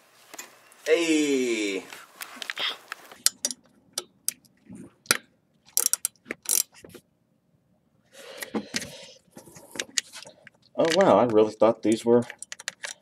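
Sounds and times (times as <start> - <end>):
ratchet wrench clicking: 5.8 - 6.7.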